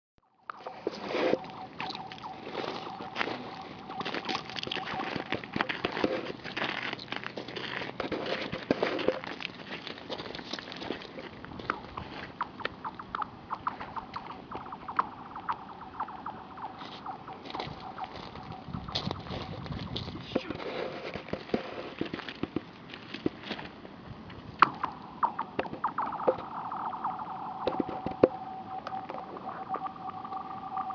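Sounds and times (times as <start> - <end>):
ice chirping and ringing: 0.3 - 6.1, 24.8 - 30.9
pebbles clicking and crunching: 1.4 - 12.7, 17.4 - 23.7.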